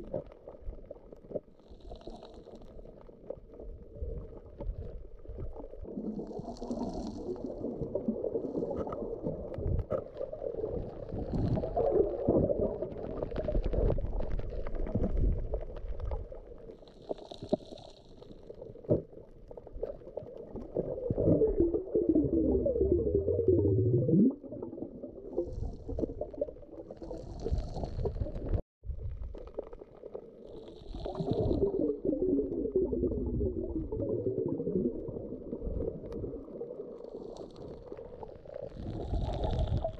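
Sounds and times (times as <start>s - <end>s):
water sloshing and gurgling underwater: 0.0s - 39.9s
bubbles hissing: 20.6s - 28.6s, 30.4s - 39.9s.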